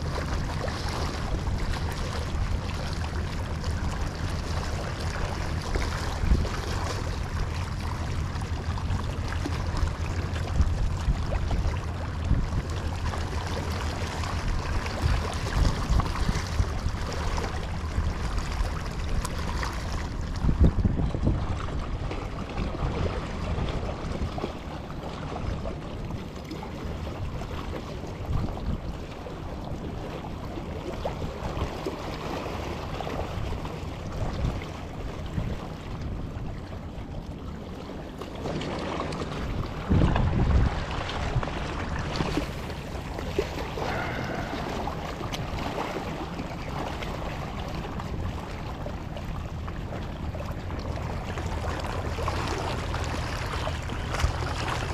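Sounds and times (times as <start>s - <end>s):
wind buffeting microphone: 0.0s - 24.5s, 39.3s - 54.9s
waves splashing against rocks: 37.8s - 54.9s.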